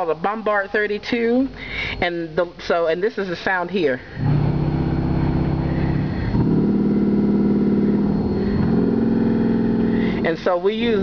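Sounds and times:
deep buzzy organ bass notes: 4.1 - 11.0.

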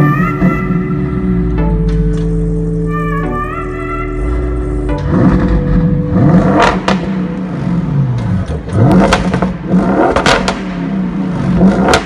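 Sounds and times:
car engine revving: 0.0 - 12.0
exhaust cracks: 4.3 - 12.0.

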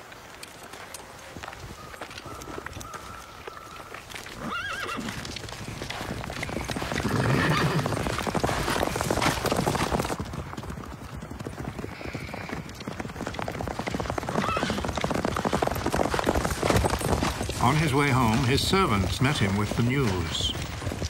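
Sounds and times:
horses galloping hoofbeats: 0.0 - 21.0
horse neighing: 4.4 - 5.3, 6.4 - 8.2, 14.3 - 14.9.

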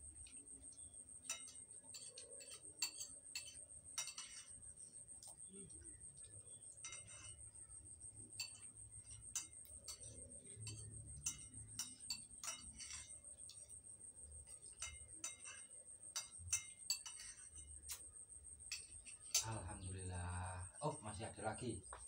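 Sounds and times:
spoons clinking on plates: 0.2 - 19.9.

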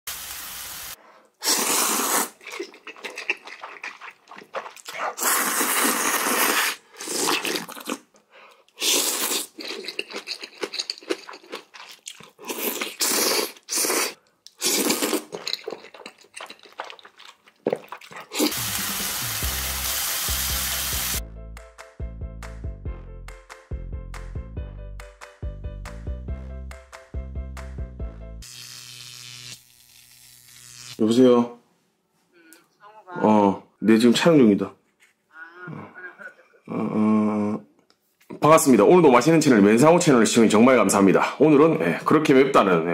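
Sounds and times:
noodle slurping: 1.4 - 8.0, 8.7 - 19.3
music: 18.5 - 28.5.

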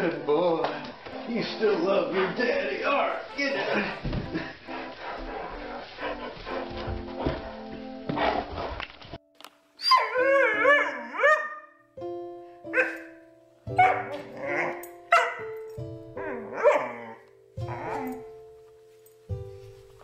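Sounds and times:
background music: 0.0 - 20.0
dog howl-like cry: 9.8 - 11.6, 16.2 - 18.3
dog barking: 12.7 - 13.1, 13.8 - 14.4, 15.1 - 15.5, 16.4 - 17.2.

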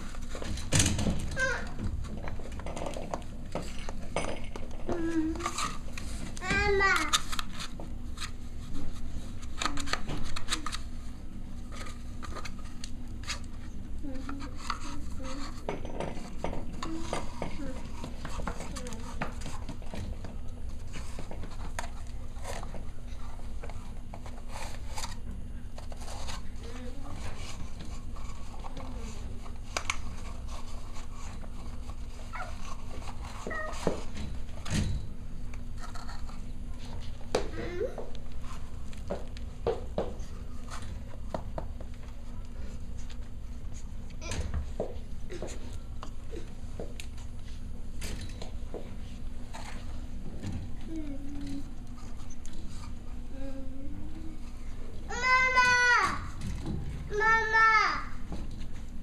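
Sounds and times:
puppies whining: 32.3 - 32.6.

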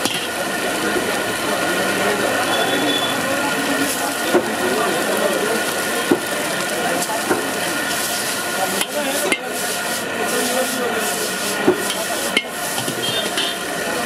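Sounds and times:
frying hiss: 0.0 - 14.0
metal ladle scraping wok: 7.8 - 13.7.

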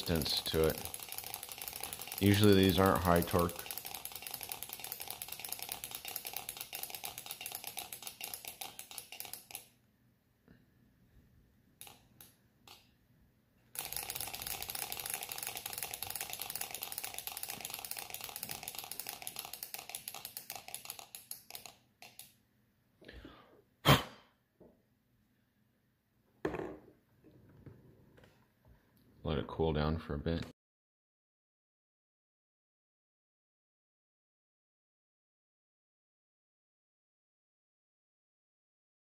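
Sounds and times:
engine bearings clicking: 0.0 - 9.8, 11.8 - 12.8, 13.7 - 22.3.

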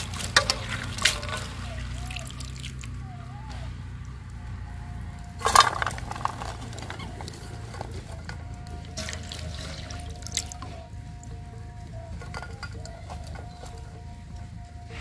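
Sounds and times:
water splashing in steel bowl: 0.0 - 3.0, 5.4 - 11.4.

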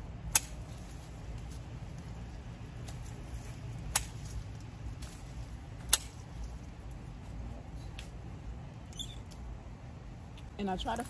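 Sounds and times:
leaves rustling: 0.0 - 11.0
clippers snipping stems: 0.2 - 2.1, 2.8 - 7.0.

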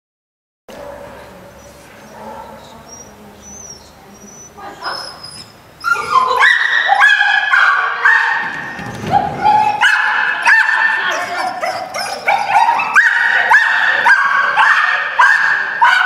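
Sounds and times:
dog barking and yipping: 4.8 - 16.0.

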